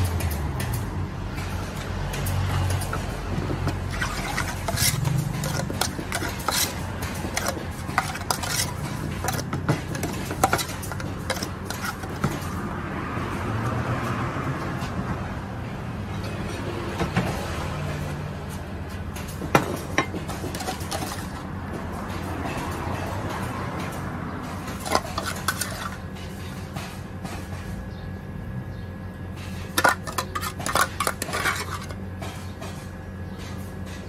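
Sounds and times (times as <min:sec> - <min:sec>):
metal spoon scraping a saucepan: 0:02.8 - 0:12.4, 0:20.0 - 0:21.4, 0:24.8 - 0:26.0, 0:29.7 - 0:32.0.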